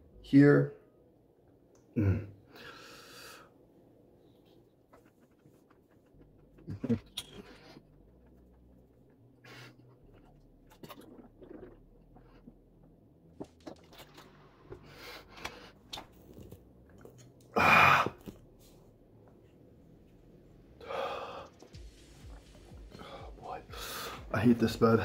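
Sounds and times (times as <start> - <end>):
person chewing wetly: 9.8 - 14.8.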